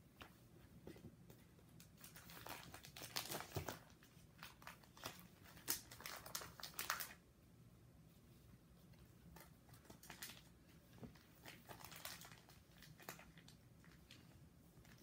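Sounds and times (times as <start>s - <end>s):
plastic pages crinkling: 1.8s - 7.2s, 9.3s - 15.0s.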